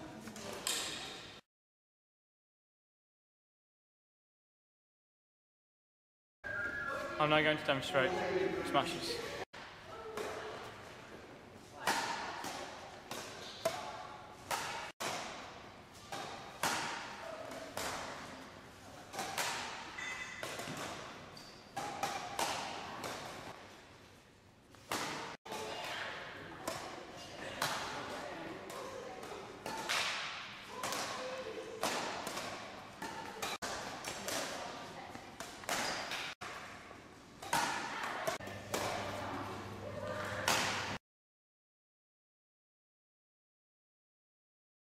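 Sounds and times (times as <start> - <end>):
racket smashing shuttlecock: 11.8 - 18.4, 19.1 - 21.2, 21.8 - 23.6, 29.2 - 34.8, 35.4 - 36.7
racket smashing shuttlecocks: 14.5 - 18.3, 19.1 - 21.2, 29.6 - 31.2.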